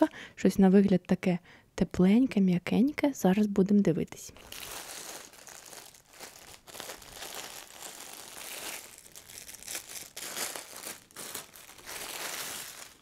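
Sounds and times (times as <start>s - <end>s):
plastic bag crinkling: 4.4s - 13.0s.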